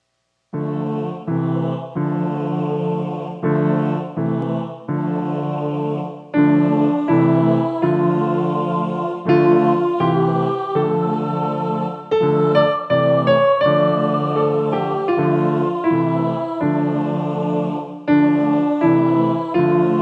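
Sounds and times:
slow minor-key piano tune: 0.6 - 2.8, 6.3 - 20.0.

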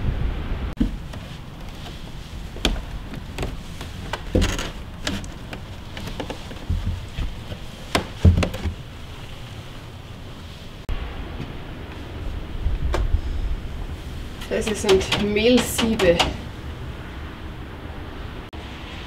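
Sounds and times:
low rumble of wind: 0.0 - 19.0
knocks and creaks: 0.8 - 9.6, 13.9 - 16.8.

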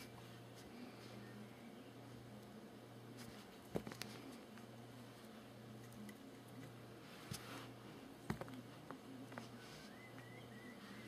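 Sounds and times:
faint steady hum: 0.0 - 11.0
soft rustle: 3.1 - 10.1.

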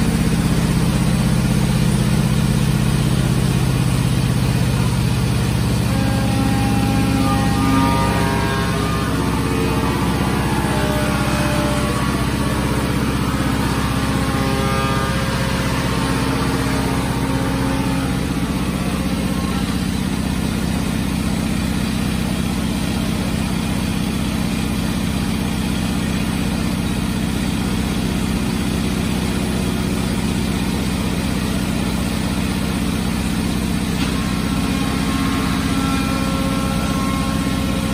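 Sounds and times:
high whining tones: 0.0 - 23.6
industrial machinery humming: 0.0 - 37.9.

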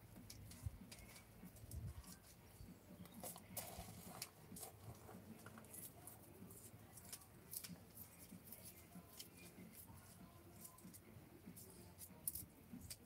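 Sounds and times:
faint rustling of plants: 0.0 - 13.0
small clicks of handling soil: 0.2 - 2.4, 3.0 - 9.9.

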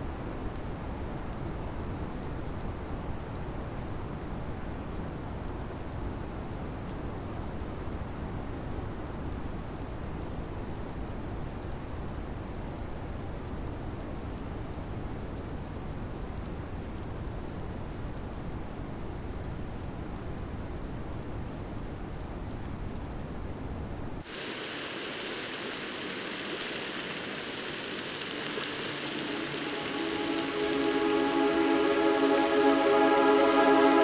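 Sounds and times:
faint crackles: 21.0 - 34.0
steam hissing from a vent: 24.2 - 30.4
wind rumble: 27.6 - 34.0.

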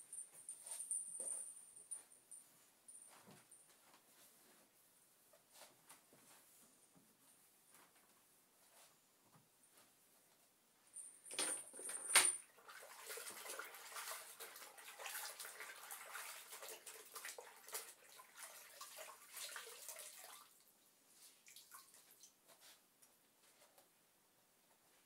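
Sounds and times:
water splashing and trickling: 12.4 - 22.4
water drips: 21.4 - 22.4.

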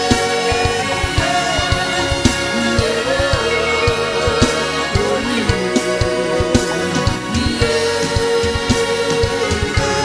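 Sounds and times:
held instrumental chords: 0.0 - 10.0.

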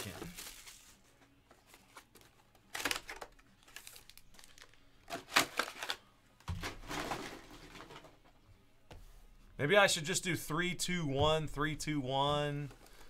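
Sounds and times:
card and wrapper rustling: 0.0 - 8.0.

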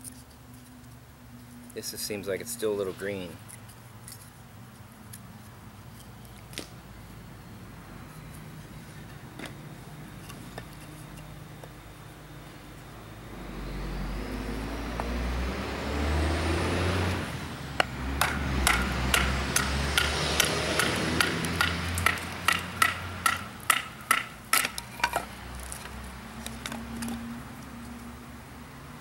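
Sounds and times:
low rumble with rising whine: 11.5 - 20.0.

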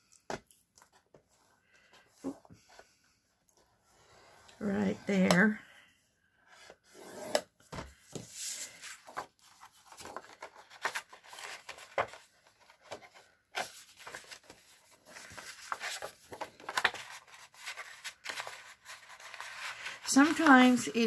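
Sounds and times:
paper rustling: 8.1 - 21.0.

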